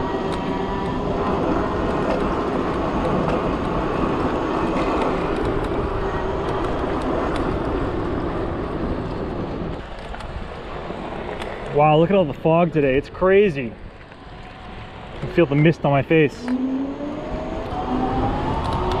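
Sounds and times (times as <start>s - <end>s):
rushing wind and road noise: 0.0s - 19.0s
electric motor whine: 16.4s - 19.0s.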